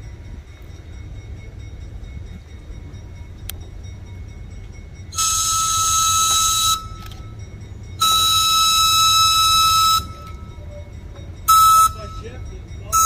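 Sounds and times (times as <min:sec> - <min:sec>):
train air horn blasts: 0:05.1 - 0:07.0, 0:08.0 - 0:10.3, 0:11.5 - 0:12.2.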